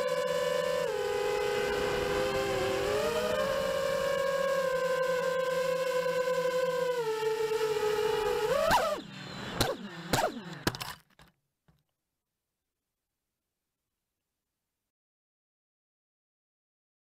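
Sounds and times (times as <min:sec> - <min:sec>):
drone motors whining: 0:00.0 - 0:11.3.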